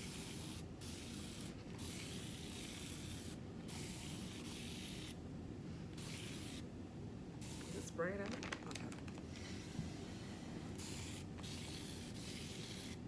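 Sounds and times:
spray bottle hissing: 6.0s - 6.6s, 7.4s - 7.8s, 10.8s - 13.0s.

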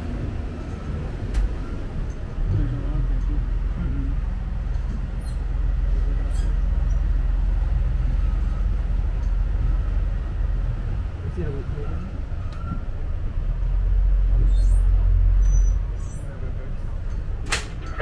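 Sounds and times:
boat engine droning: 0.0s - 18.0s.

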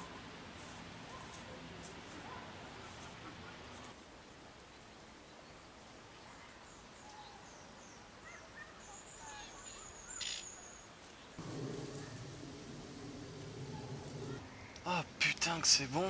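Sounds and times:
soft outdoor hush: 0.0s - 16.0s
songbird chirps and twitters: 6.8s - 14.9s.

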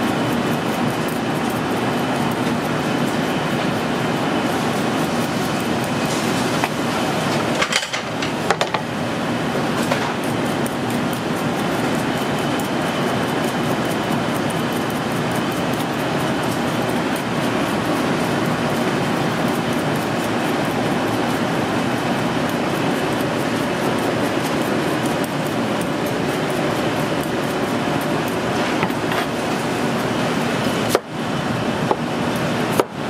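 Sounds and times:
rumbling kitchen din: 0.8s - 12.1s.

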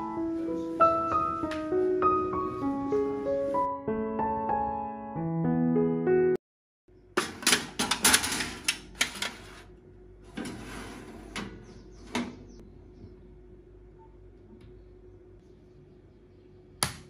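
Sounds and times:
wire rack and tray clattering: 7.2s - 9.5s.

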